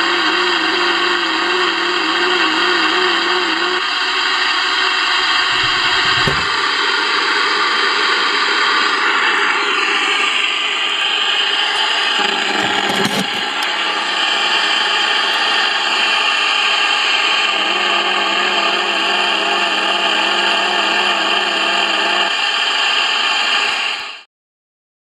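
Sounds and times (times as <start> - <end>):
warbling interference tones: 5.1 - 6.7
radio static hiss: 11.8 - 16.2.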